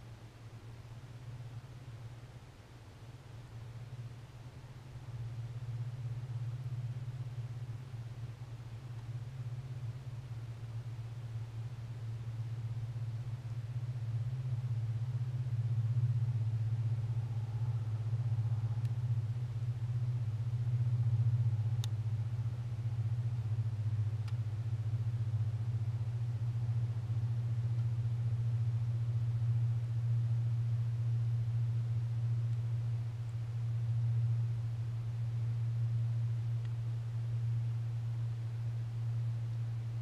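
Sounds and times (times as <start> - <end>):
faint hiss: 0.0 - 40.0
steady low hum: 0.0 - 40.0
faint ticks: 4.8 - 11.1, 18.3 - 19.2, 21.3 - 24.6, 27.7 - 28.0, 30.1 - 40.0.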